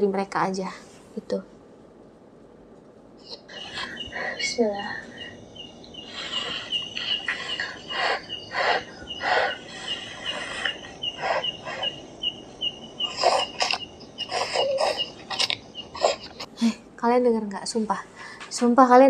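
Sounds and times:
insect chirping: 0:03.2 - 0:16.5.

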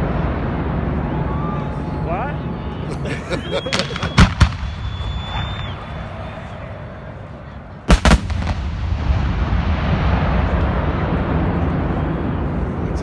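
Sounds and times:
rushing noise with low rumble: 0:00.0 - 0:02.8, 0:04.3 - 0:13.0
fireworks bangs: 0:03.3 - 0:06.6, 0:07.9 - 0:12.7.

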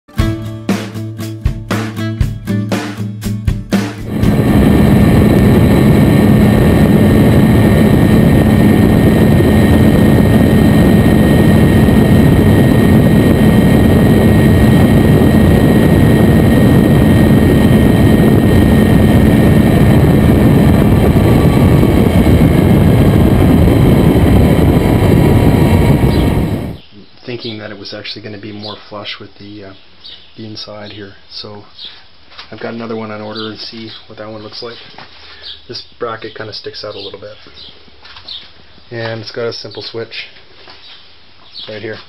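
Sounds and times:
wind rush over microphone: 0:04.0 - 0:26.8
motorcycle engine at high revs: 0:25.7 - 0:26.8.

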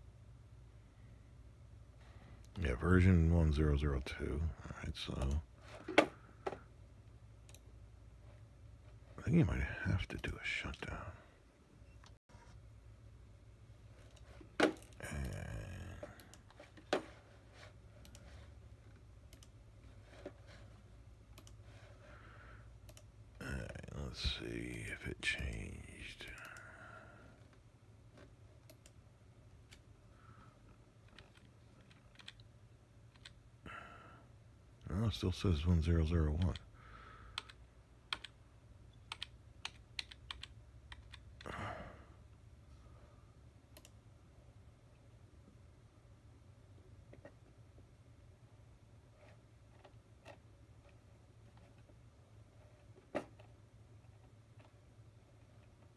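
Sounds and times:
steady low hum: 0:00.0 - 0:55.9
computer mouse clicks: 0:19.3 - 0:19.5, 0:21.3 - 0:21.6, 0:22.8 - 0:23.1, 0:26.3 - 0:26.6, 0:37.4 - 0:38.4, 0:43.7 - 0:44.0.

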